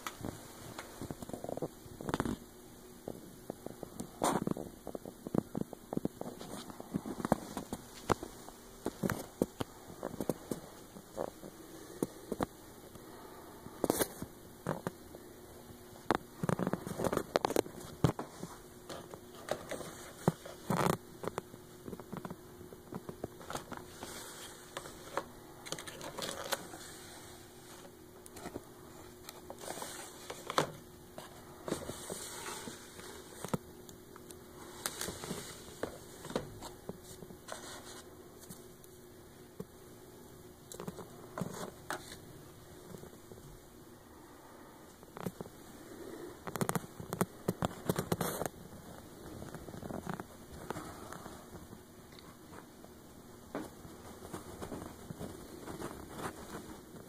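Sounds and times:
faint steady hum: 0:00.0 - 0:57.0
plastic objects clicking and scraping: 0:16.0 - 0:38.6, 0:46.4 - 0:51.2.

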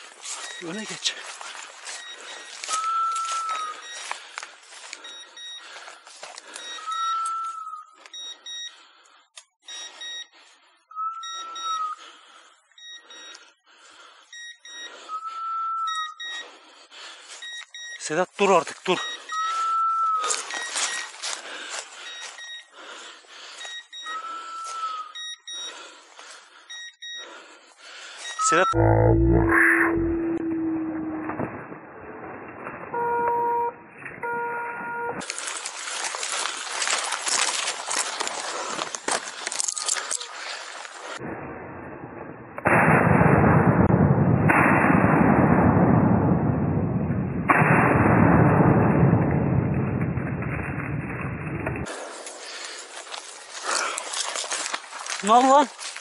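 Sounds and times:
footsteps crunching through dry leaves: 0:00.0 - 0:05.0, 0:05.6 - 0:06.6, 0:20.2 - 0:22.4, 0:35.2 - 0:41.2, 0:51.9 - 0:56.0.

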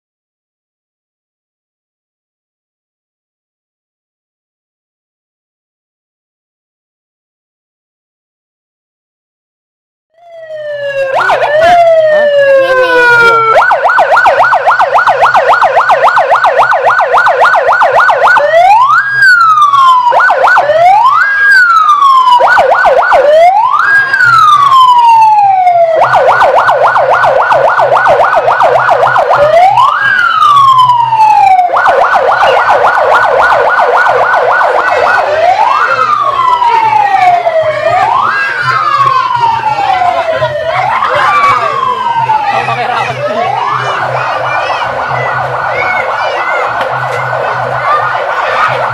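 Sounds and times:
electronic siren wailing: 0:10.1 - 0:48.9.

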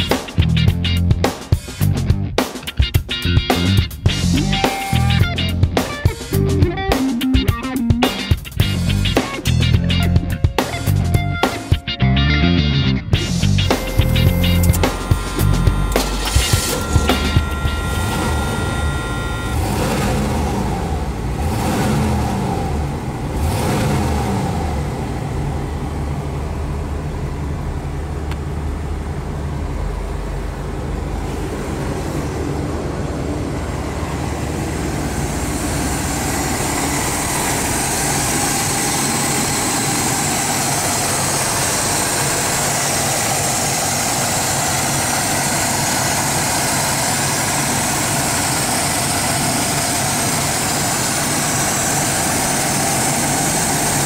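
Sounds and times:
car engine revving and idling: 0:08.6 - 0:11.5, 0:12.8 - 0:54.0
engine fan and belt hiss: 0:14.6 - 0:54.0.

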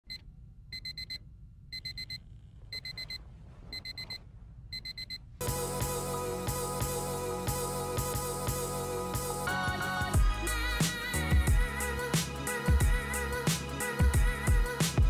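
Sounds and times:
alarm clock beeping: 0:02.8 - 0:03.2, 0:04.8 - 0:05.2
music: 0:05.4 - 0:15.0.

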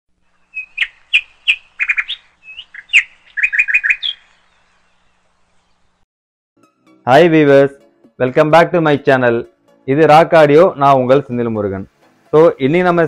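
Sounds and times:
bird chirping and whistling: 0:00.5 - 0:04.6.

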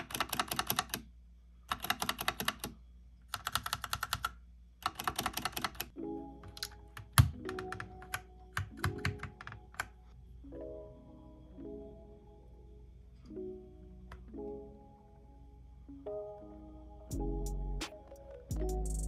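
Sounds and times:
mechanical keyboard typing: 0:00.0 - 0:01.1, 0:01.7 - 0:10.0
music: 0:05.9 - 0:19.0.

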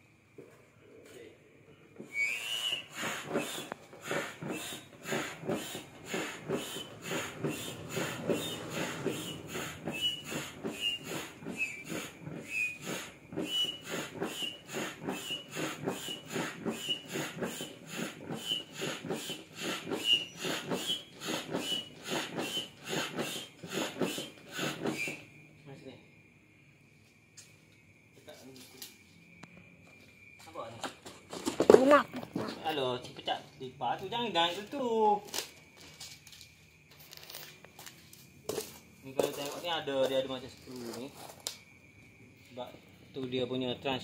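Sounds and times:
foot pump rushing air: 0:02.0 - 0:25.4
pump whistling squeak: 0:02.0 - 0:25.4.

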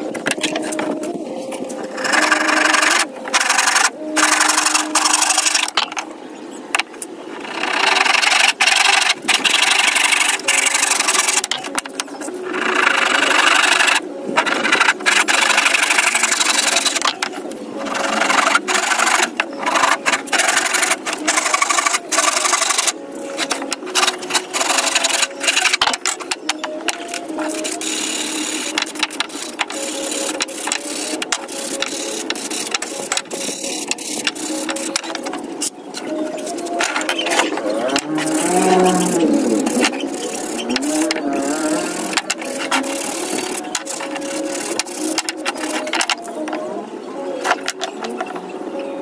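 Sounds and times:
hand saw cutting wood: 0:01.9 - 0:05.8, 0:12.5 - 0:17.2, 0:17.8 - 0:35.3, 0:36.6 - 0:46.2.

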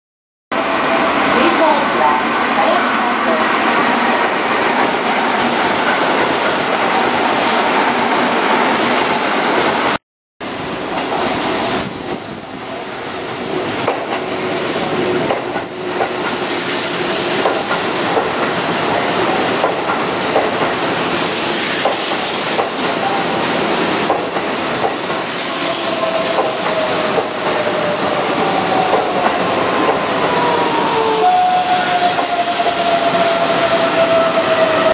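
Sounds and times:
train wheels clattering on rails: 0:13.7 - 0:34.6.

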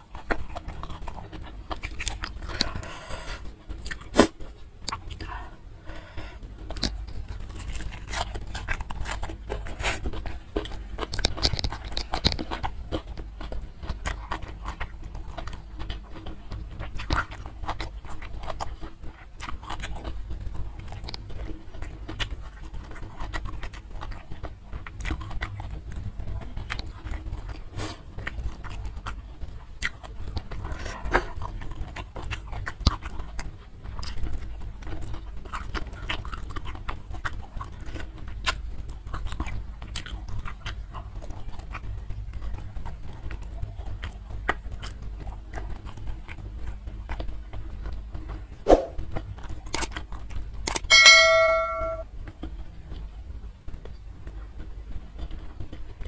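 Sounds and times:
person chewing wet mouth clicks: 0:00.0 - 0:20.2, 0:49.6 - 0:50.8
fingers picking at food: 0:00.0 - 0:46.5, 0:48.3 - 0:52.0.

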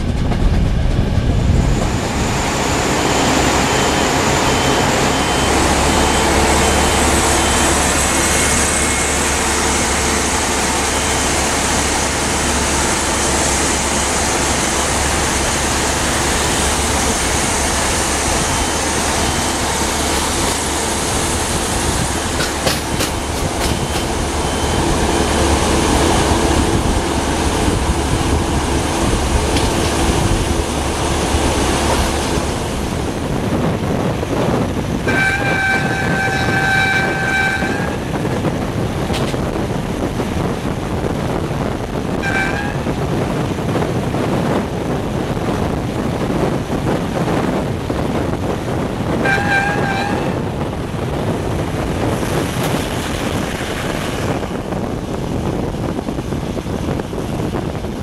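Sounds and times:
train rumbling on the line: 0:00.0 - 0:58.0
train horn blasts: 0:35.0 - 0:38.2, 0:42.2 - 0:43.0, 0:49.2 - 0:50.4.

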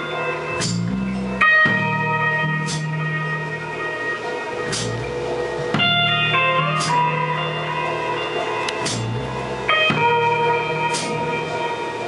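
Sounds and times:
bass guitar notes: 0:00.0 - 0:12.0
guitar chords ringing: 0:00.0 - 0:12.0
drum hits: 0:04.7 - 0:07.1, 0:08.8 - 0:10.3.

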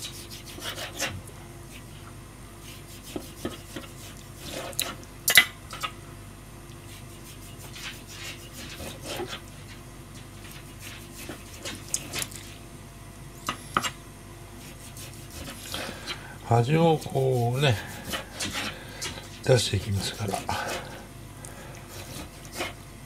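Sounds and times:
knife slicing meat: 0:00.0 - 0:01.9, 0:02.6 - 0:05.9, 0:06.9 - 0:09.7, 0:10.4 - 0:12.6, 0:14.6 - 0:16.2, 0:16.8 - 0:21.0, 0:21.8 - 0:22.8.

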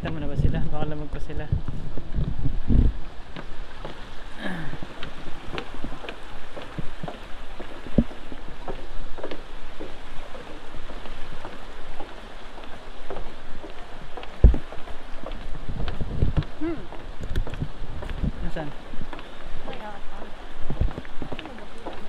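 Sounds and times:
steady rush and low rumble: 0:00.0 - 0:08.6.

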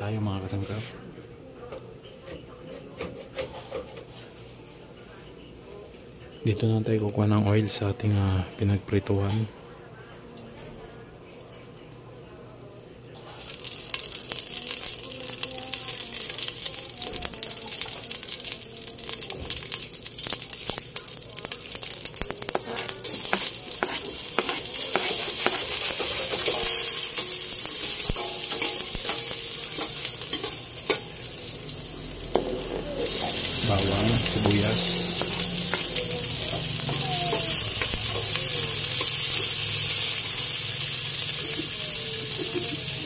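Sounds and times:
hot oil sizzling and crackling: 0:13.1 - 0:43.0.

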